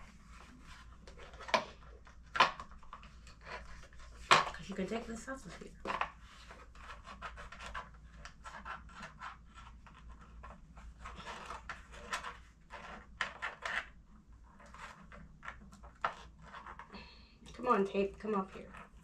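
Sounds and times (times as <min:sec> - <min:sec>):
small scrapes: 0:03.0 - 0:17.2.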